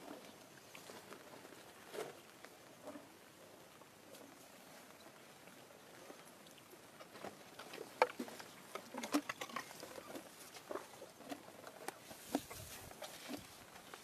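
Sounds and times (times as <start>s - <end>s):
elephant trunk rustling at microphone: 9.0s - 14.0s.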